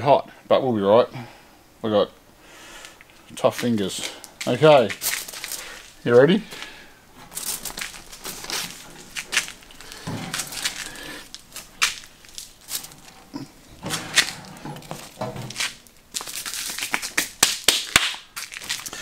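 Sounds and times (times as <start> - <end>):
baking paper crinkling: 3.5 - 6.0, 7.2 - 19.0.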